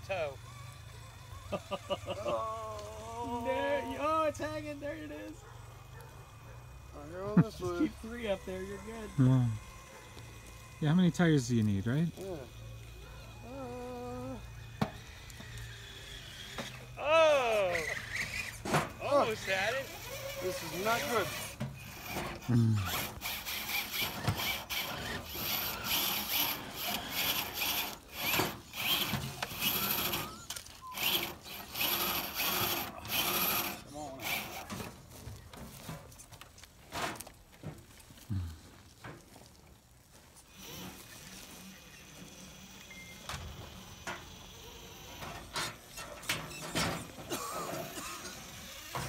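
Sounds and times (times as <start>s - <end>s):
toy car motors whirring: 0.0s - 49.0s
tyres scraping over sheet metal: 17.7s - 19.8s, 20.4s - 37.9s, 45.1s - 49.0s
thin high whine: 40.6s - 44.3s.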